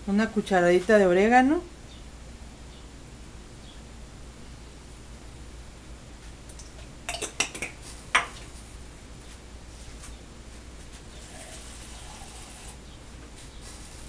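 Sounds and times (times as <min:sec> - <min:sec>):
dishes and utensils clinking: 0:07.1 - 0:07.7.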